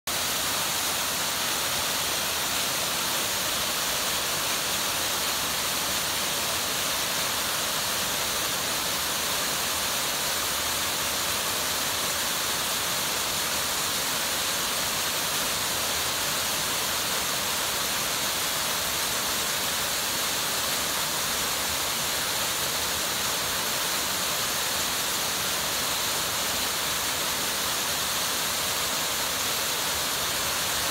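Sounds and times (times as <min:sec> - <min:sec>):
waterfall rushing: 0:00.1 - 0:30.9.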